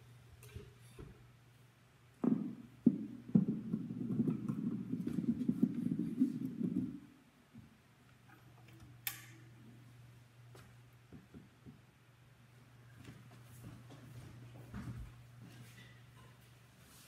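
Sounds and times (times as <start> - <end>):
microphone knocks: 2.2 - 7.0
microphone rubbing and rumbling: 2.4 - 7.2.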